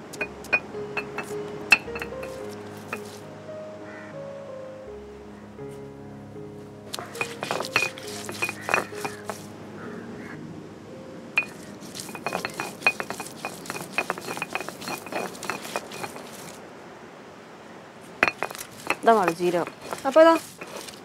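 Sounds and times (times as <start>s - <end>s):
stone roller grinding on stone slab: 0.0s - 3.2s, 7.0s - 9.5s, 11.4s - 16.6s, 18.2s - 21.0s.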